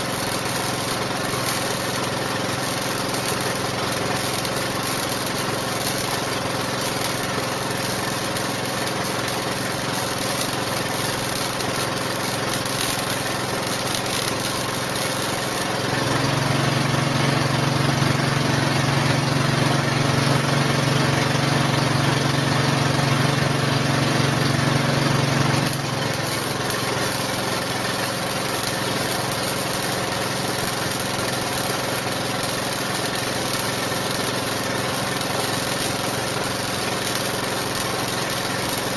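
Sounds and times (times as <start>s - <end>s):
welding arc crackling: 0.0s - 16.5s, 24.5s - 38.9s.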